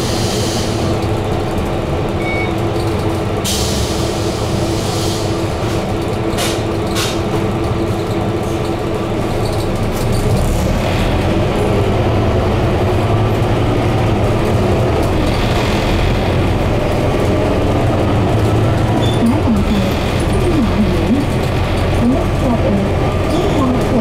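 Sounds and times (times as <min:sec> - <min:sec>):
bus engine: 0:00.0 - 0:24.0
road and cabin noise: 0:00.0 - 0:24.0.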